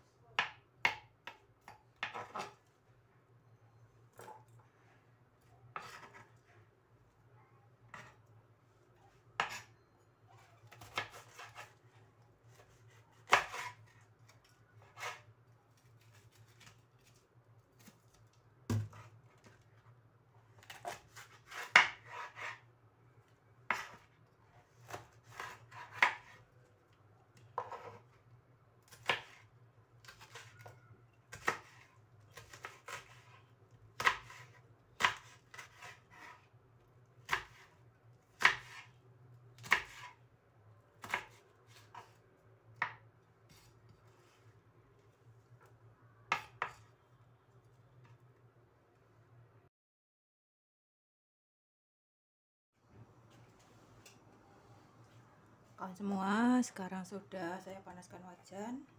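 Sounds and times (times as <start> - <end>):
knife slicing chili: 10.4 - 11.8, 12.4 - 15.3, 20.6 - 22.7, 23.7 - 24.1, 24.7 - 26.4, 28.9 - 36.6, 37.2 - 39.0, 39.6 - 40.2.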